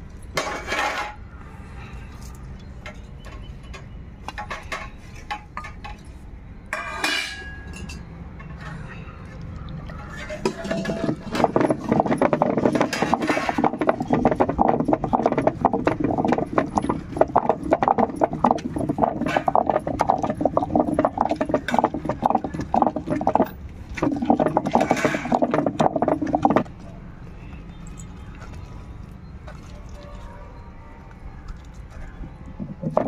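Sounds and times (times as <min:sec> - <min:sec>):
gritty stone scraping: 0:10.9 - 0:26.7.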